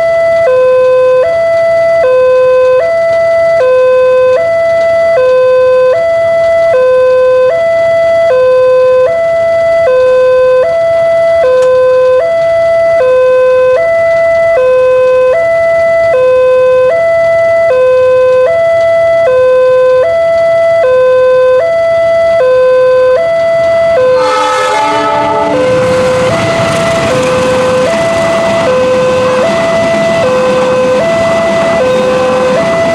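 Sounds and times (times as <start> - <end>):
two-tone crossing alarm: 0.0 - 32.9
approaching diesel train: 23.8 - 32.9.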